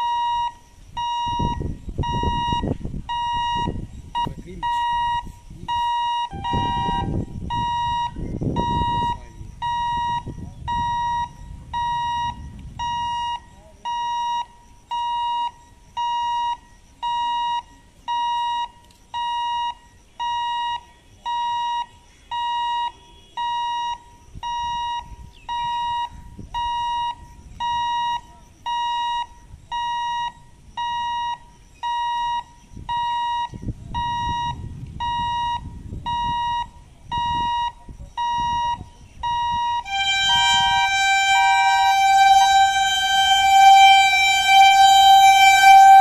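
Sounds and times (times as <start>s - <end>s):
level crossing buzzer beeping: 5.8s - 13.4s, 39.6s - 46.0s
low rumble: 9.5s - 13.4s.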